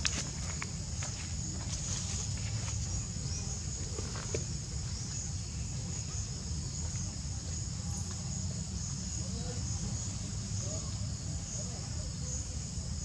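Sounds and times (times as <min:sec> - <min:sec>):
insect chorus droning: 0:00.0 - 0:13.0.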